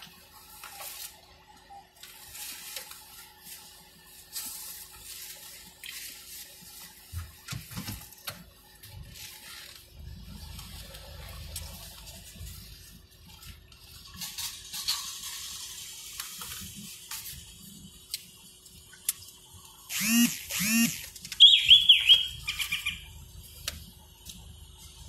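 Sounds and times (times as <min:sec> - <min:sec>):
high falling chirps: 0:19.9 - 0:23.2
short squeaky calls: 0:19.9 - 0:23.2.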